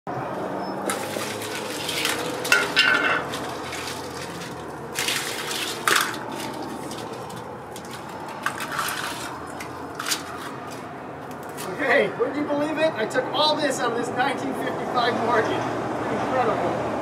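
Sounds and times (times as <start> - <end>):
wires rustling: 0.4 - 11.8.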